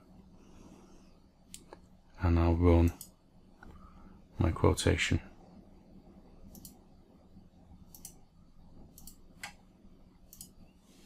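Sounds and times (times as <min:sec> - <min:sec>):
computer mouse clicks: 0:06.5 - 0:06.8, 0:07.9 - 0:08.3, 0:08.9 - 0:09.6, 0:10.3 - 0:10.7.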